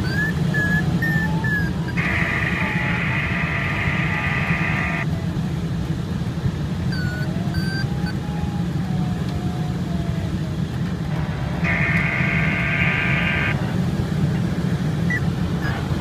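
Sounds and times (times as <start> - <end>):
buzzing electronic tone: 1.9 - 5.0, 11.2 - 13.6.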